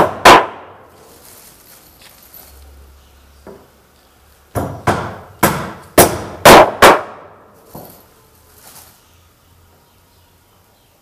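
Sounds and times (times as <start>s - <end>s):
hammer driving nail into wood: 4.5s - 7.2s.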